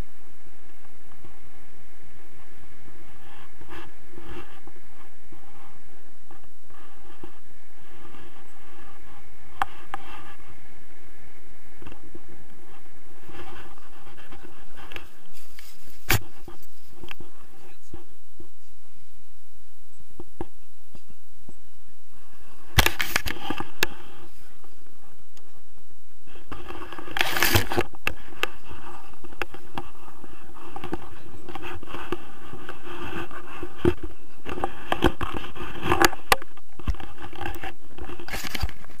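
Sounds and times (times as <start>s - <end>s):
straps rubbing against camera: 11.8s - 18.1s, 22.6s - 24.8s, 26.3s - 39.0s.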